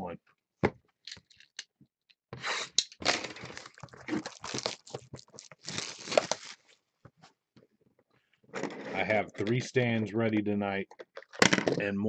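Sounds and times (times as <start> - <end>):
plastic wrap crinkling and ripping: 3.0 - 6.8.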